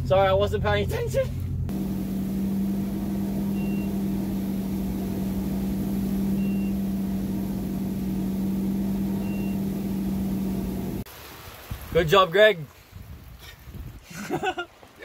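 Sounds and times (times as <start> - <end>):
boat engine running: 1.7 - 11.1.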